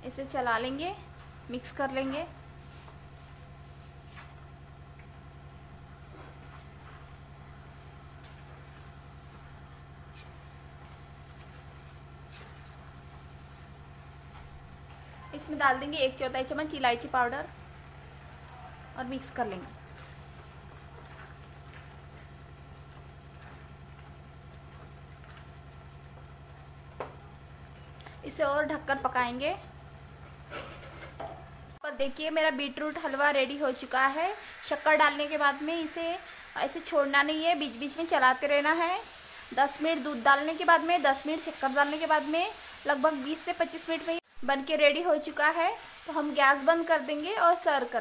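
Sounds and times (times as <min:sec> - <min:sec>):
thick mixture bubbling in a pan: 0:01.0 - 0:15.2, 0:19.6 - 0:28.3
spatula stirring in frying pan: 0:06.0 - 0:14.5.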